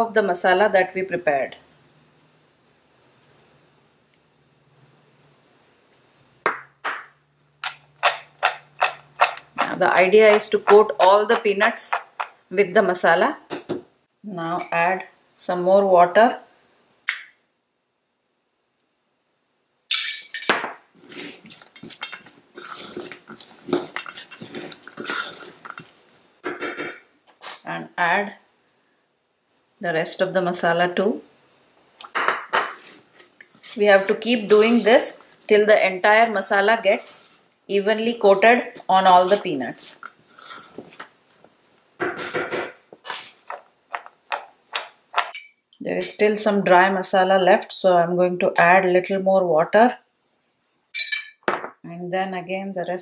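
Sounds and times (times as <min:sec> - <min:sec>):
scratchy strokes in a bowl: 0:01.6 - 0:03.6, 0:32.7 - 0:35.2, 0:38.2 - 0:39.6.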